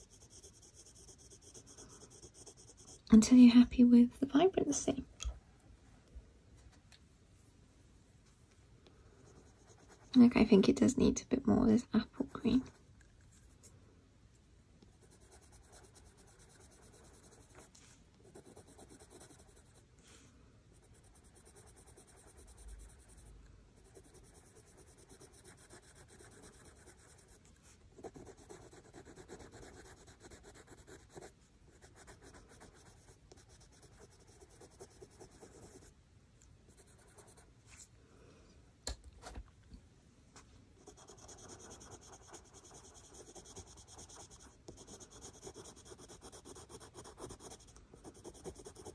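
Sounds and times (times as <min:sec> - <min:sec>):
coloured pencil scratching on paper: 0:00.0 - 0:03.1, 0:09.2 - 0:10.6, 0:14.9 - 0:19.8, 0:20.7 - 0:27.4, 0:28.0 - 0:35.9, 0:36.7 - 0:37.5, 0:40.8 - 0:48.9.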